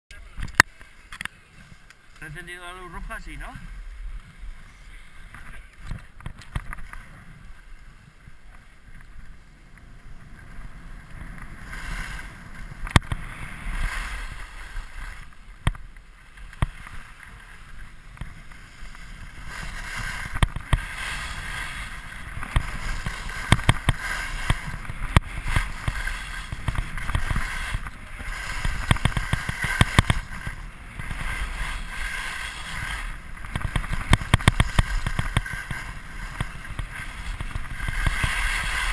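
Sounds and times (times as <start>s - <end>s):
skis scraping over snow: 0.2s - 38.9s
wind rumble on microphone: 3.0s - 38.9s.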